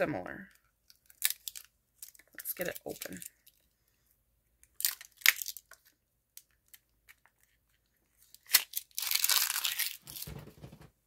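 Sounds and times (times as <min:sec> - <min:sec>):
packaging crinkling: 0:00.9 - 0:03.6, 0:04.8 - 0:06.8, 0:08.2 - 0:10.7.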